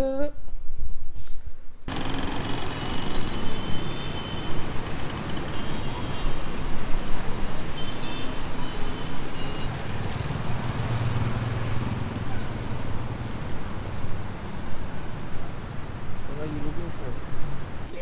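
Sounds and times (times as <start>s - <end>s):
engine drone: 1.9s - 6.2s
city traffic: 1.9s - 18.0s.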